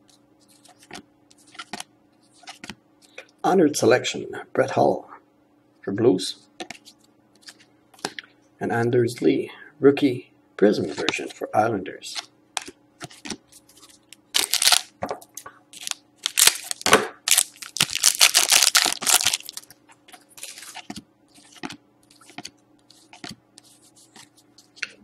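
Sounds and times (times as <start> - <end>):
foil wrapper crinkling and tearing: 13.7 - 14.9, 15.8 - 19.8, 20.4 - 22.3
cards clicking and sliding: 20.1 - 25.0.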